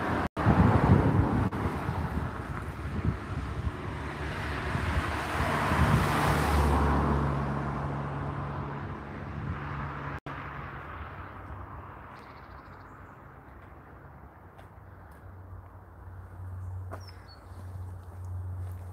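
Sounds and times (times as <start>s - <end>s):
car passing: 0.0s - 18.9s.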